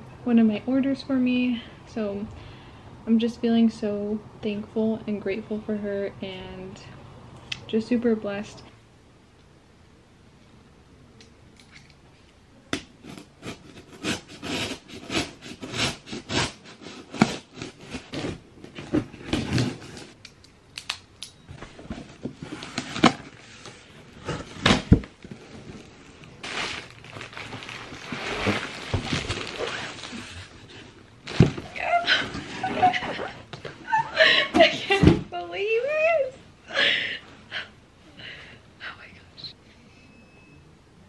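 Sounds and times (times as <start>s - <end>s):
knife slitting packing tape: 13.0s - 18.4s
plastic wrap crinkling: 22.0s - 33.0s.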